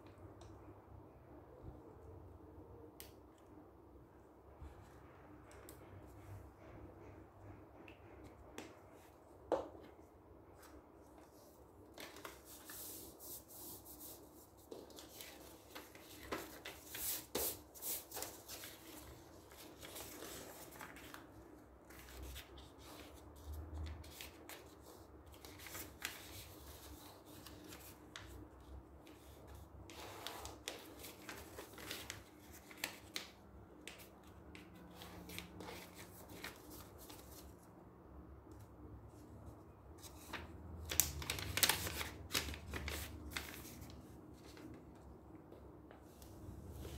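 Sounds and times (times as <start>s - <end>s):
paper rustling and creasing: 10.6s - 28.3s, 29.1s - 34.0s, 40.0s - 45.0s.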